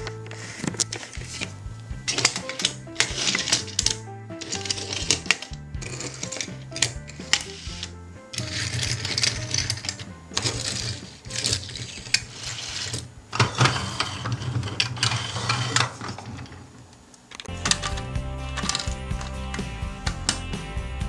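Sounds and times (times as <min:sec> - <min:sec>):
toy wheels rolling on tabletop: 0:00.0 - 0:18.0
toys clicking together: 0:02.1 - 0:12.2.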